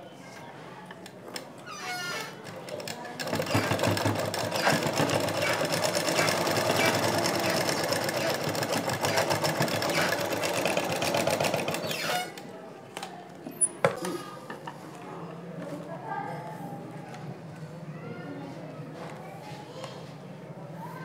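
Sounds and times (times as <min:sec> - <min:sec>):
sewing machine clattering: 0:02.4 - 0:12.3.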